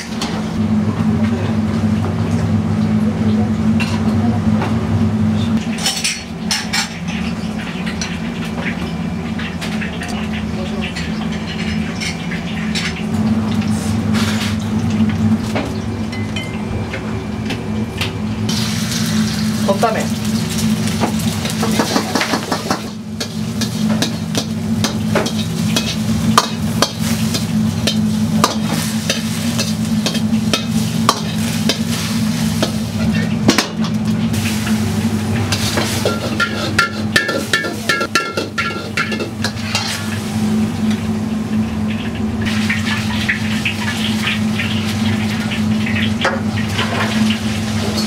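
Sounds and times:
low kitchen hum: 0.0 - 48.0
egg sizzling in a wok: 18.5 - 48.0
ladle clanking against wok: 35.4 - 40.2
metal ladle scraping wok: 35.5 - 40.2.

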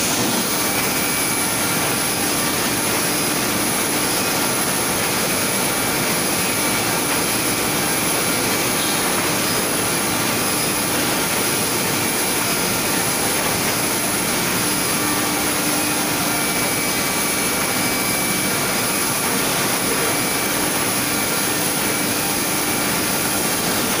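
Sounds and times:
roller conveyor whirring: 0.0 - 24.0.

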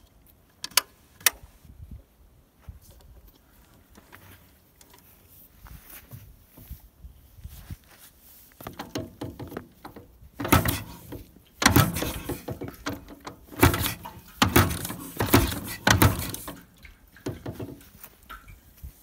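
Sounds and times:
motorcycle engine turning over: 8.7 - 17.8.

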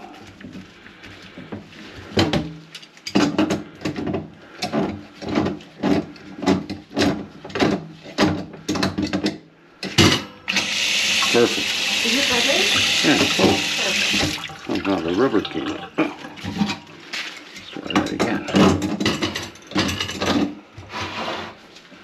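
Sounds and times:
aerator scraping on faucet: 10.5 - 18.0.

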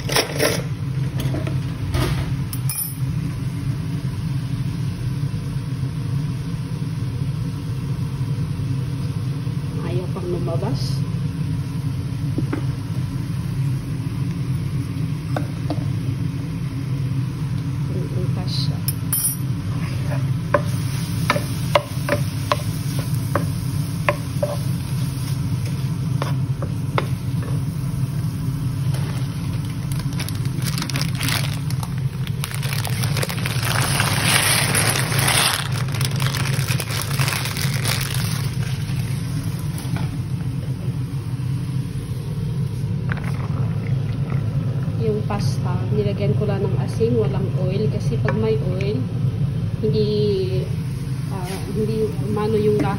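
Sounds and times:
steady low hum: 0.0 - 52.9
chicken sizzling in a frying pan: 20.6 - 40.2.

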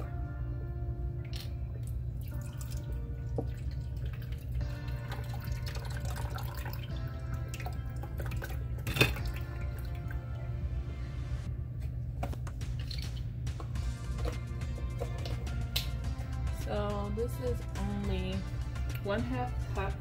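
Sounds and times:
background music: 0.0 - 20.0
liquid pouring and splashing: 1.2 - 10.1, 12.6 - 13.3.

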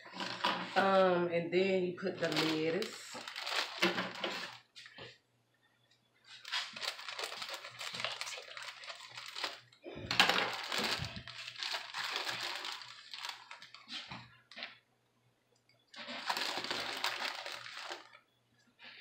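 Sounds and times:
plastic bag crinkling: 0.0 - 1.0, 2.0 - 5.0, 6.3 - 14.8, 15.9 - 18.2.

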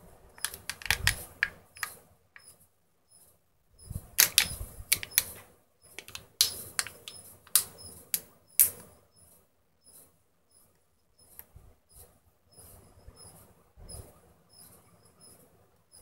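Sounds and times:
plastic lid crinkling: 0.4 - 1.9, 4.2 - 5.3, 6.0 - 7.7.

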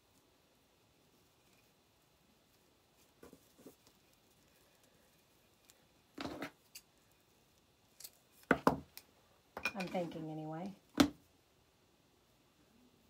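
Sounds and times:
ribbon and twine rustling: 0.9 - 8.6.

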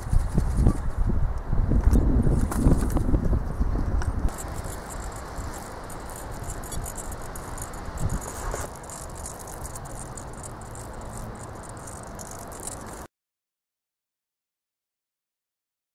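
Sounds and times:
mechanical wings rattling and fluttering: 0.0 - 1.2, 1.8 - 13.1
low wind rumble: 0.0 - 13.1.

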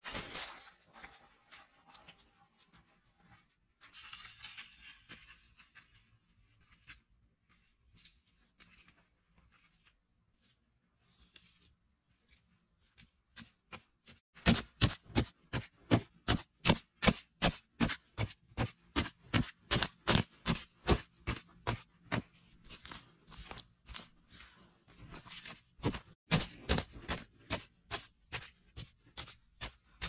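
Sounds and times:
digging tool chopping clay soil: 14.4 - 22.2, 25.8 - 30.0.

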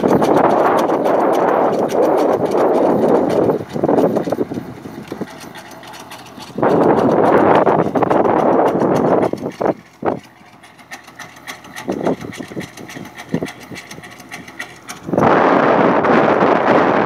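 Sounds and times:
tractor engine running: 0.0 - 17.0
wind buffeting microphone: 0.0 - 17.0.

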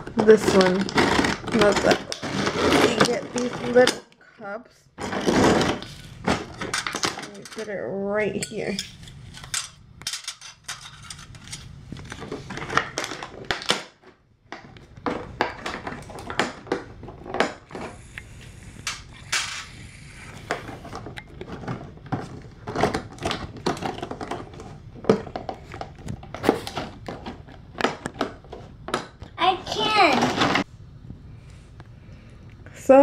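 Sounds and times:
tin toy dishes clinking: 6.7 - 11.6.

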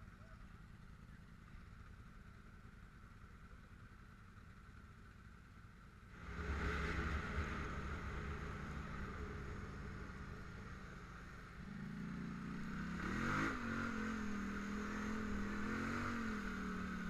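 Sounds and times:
quad engine running: 0.0 - 17.0
rushing noise: 6.1 - 12.0.

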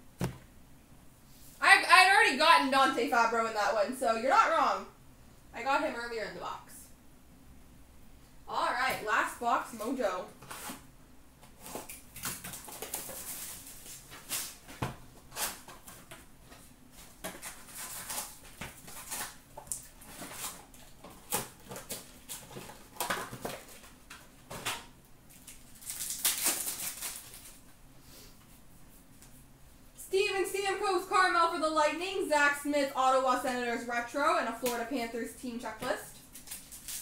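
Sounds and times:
card packs rustling and tapping: 11.4 - 27.6
pack being torn open: 24.6 - 27.6, 36.2 - 37.0.

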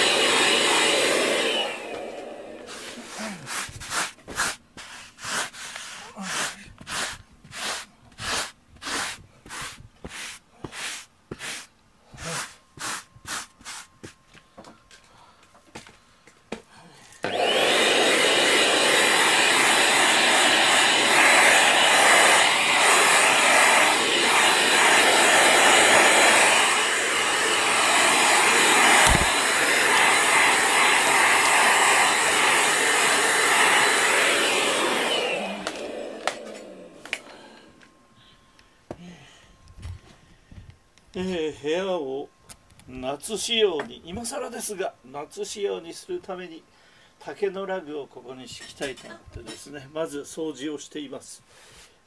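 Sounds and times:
handheld vacuum cleaner running: 0.0 - 4.5, 17.2 - 37.9
rubbing strokes on foam mat: 2.7 - 14.2.

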